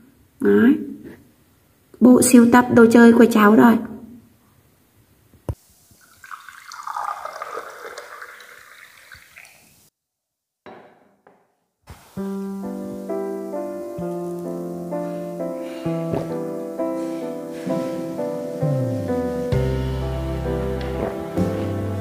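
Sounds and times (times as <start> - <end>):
water pouring into glasses: 5.9 - 9.9
background music stepped notes: 12.3 - 22.0.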